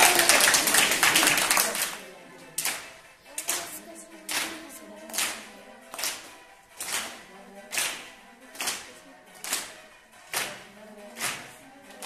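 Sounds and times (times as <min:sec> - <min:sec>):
faint music with held tones: 0:00.0 - 0:12.0
sharp percussive beats: 0:02.6 - 0:12.0.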